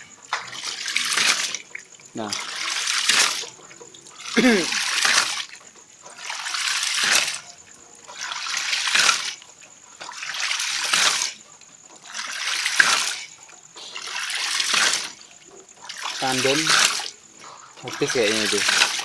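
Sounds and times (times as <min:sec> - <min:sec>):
water gushing from valve: 0:00.0 - 0:19.0.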